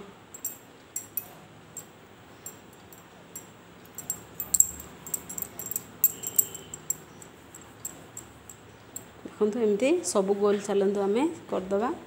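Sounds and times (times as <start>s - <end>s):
light clicks and clinks: 0.4s - 9.2s.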